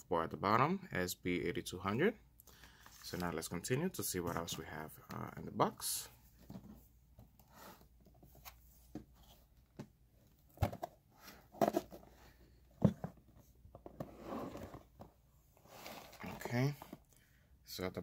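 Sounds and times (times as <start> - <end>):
cardboard knocks and scrapes: 10.5 - 15.2.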